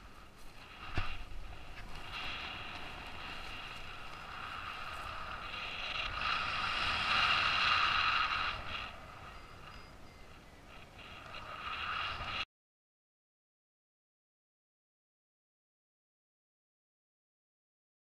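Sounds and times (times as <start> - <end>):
wind rushing over microphone: 0.0 - 12.5.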